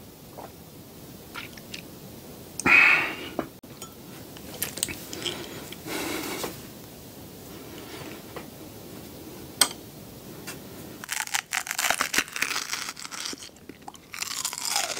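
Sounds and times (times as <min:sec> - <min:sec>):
breathy exhale: 0:02.6 - 0:03.5, 0:05.2 - 0:06.6.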